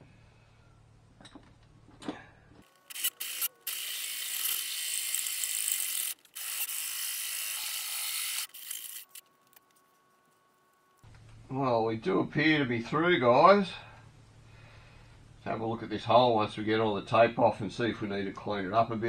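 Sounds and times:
cordless drill cutting sheet metal: 0:02.7 - 0:09.3.

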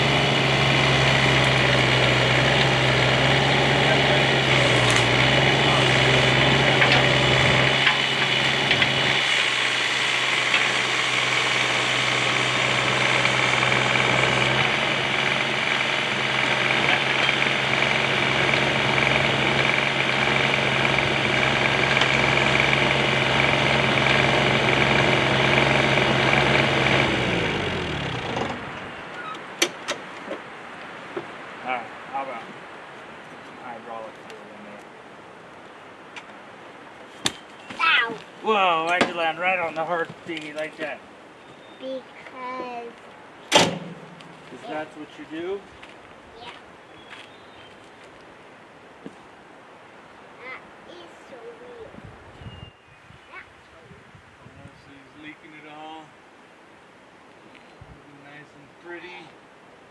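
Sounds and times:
diesel engine running: 0:00.0 - 0:29.6, 0:43.5 - 0:45.3.

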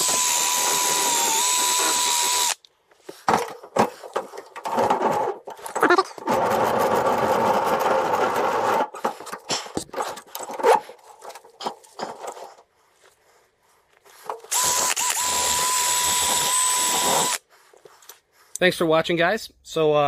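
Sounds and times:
drill wire wheel on steel: 0:00.0 - 0:02.6, 0:14.5 - 0:17.4.

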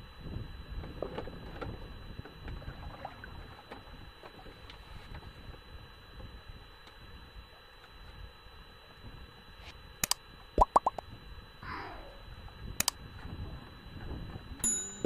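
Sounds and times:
rising bloops: 0:10.6 - 0:11.0.

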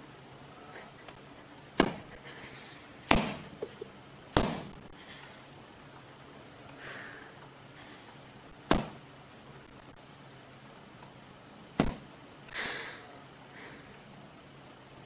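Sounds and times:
sharp knocks: 0:03.1 - 0:03.6, 0:04.4 - 0:04.8, 0:08.7 - 0:09.0.

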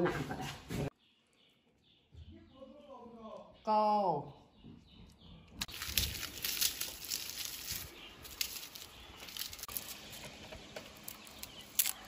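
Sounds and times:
garlic skins crackling: 0:05.6 - 0:12.0.

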